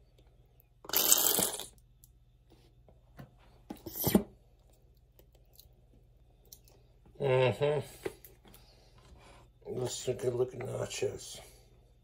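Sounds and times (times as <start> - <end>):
plastic squeeze bottle squirting: 0.9 - 1.8.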